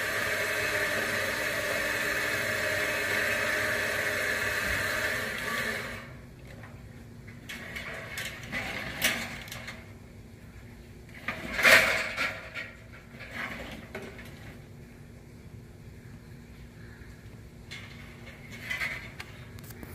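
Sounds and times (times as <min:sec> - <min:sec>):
metal clunks and scrapes: 0:07.3 - 0:09.8, 0:11.2 - 0:14.6, 0:17.7 - 0:19.6.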